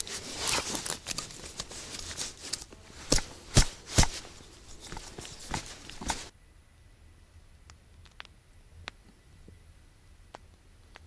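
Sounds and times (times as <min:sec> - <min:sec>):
nylon tent fabric rustling: 0:00.0 - 0:06.3.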